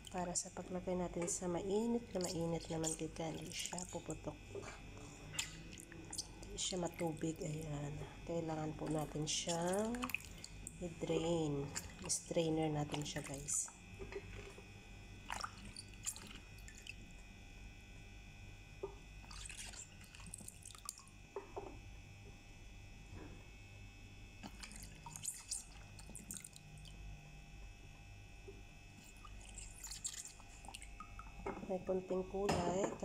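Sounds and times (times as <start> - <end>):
faint steady hum: 0.0 - 33.0
water splashes and drips: 2.1 - 4.2, 8.8 - 10.8, 11.6 - 13.7, 15.3 - 17.1, 19.2 - 21.1, 24.4 - 27.0, 29.0 - 31.4.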